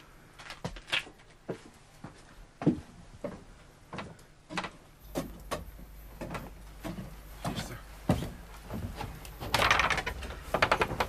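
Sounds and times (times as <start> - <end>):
footsteps on wooden deck: 1.4 - 9.6.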